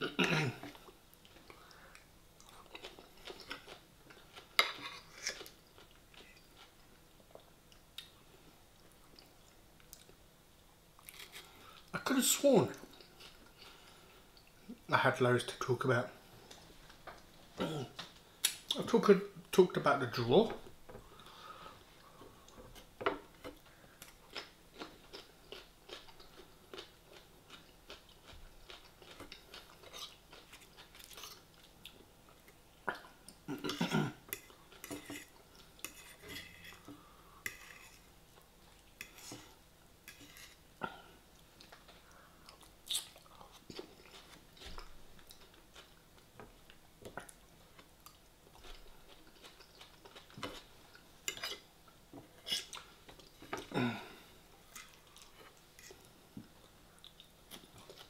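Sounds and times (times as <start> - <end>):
chewing food: 0.6 - 8.2, 23.4 - 33.5, 41.3 - 58.0.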